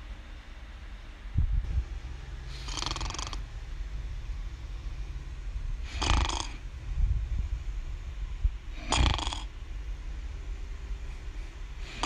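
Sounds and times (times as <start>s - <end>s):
steady low rumble: 0.0s - 12.0s
girl snoring: 2.6s - 3.4s, 5.8s - 6.6s, 8.7s - 9.5s.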